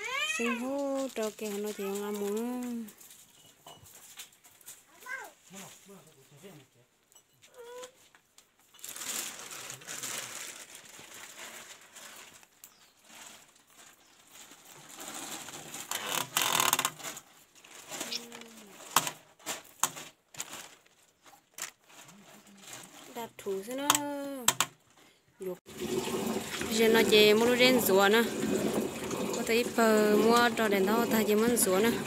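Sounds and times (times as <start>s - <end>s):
plastic sheeting rustling: 0.0s - 6.6s, 8.5s - 24.3s.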